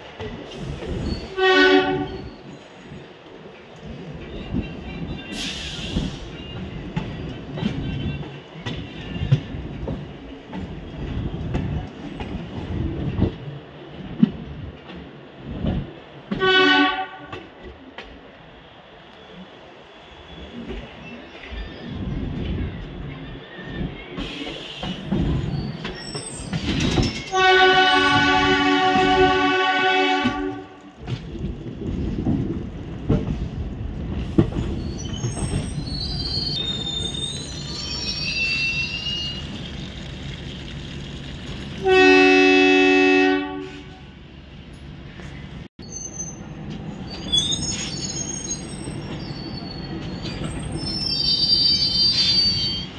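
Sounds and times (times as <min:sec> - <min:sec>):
train wheels rumbling on track: 0:00.0 - 0:52.9
train horn blast: 0:01.4 - 0:02.3, 0:16.3 - 0:17.4, 0:27.3 - 0:30.8, 0:41.8 - 0:44.0
high-pitched wheel squeals: 0:34.6 - 0:40.0, 0:45.8 - 0:52.9.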